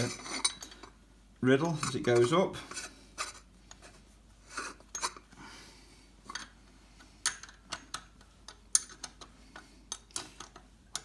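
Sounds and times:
metallic clicks and clinks: 7.2 - 9.3.

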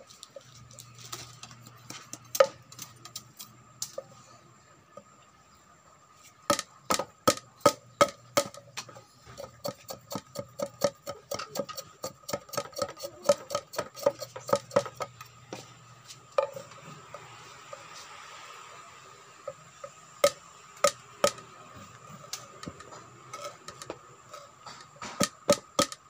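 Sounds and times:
machete chopping bamboo: 6.5 - 15.0, 20.2 - 21.4, 25.0 - 26.0.

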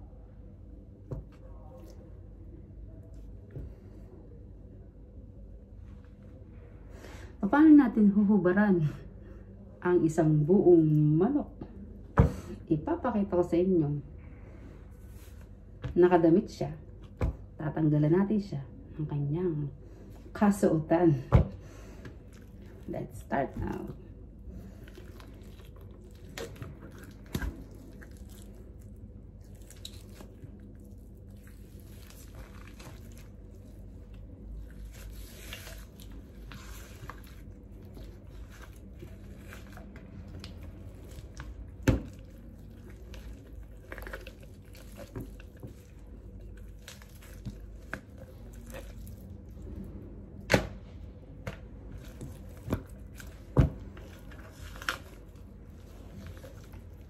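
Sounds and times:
chicken skin peeling and tearing: 24.6 - 49.6.

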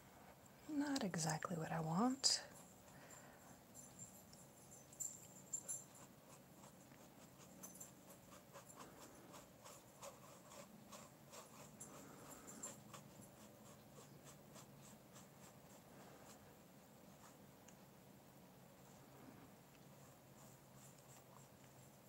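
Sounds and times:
paintbrush scratching on paper: 5.6 - 17.5, 19.9 - 22.0.

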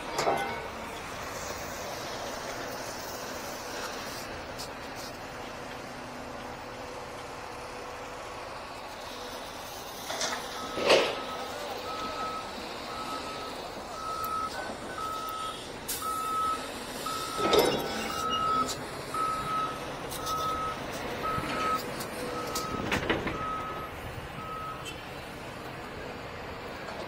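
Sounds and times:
loud mechanical noises: 0.0 - 27.0
reversing alarm beeping: 10.5 - 25.0.

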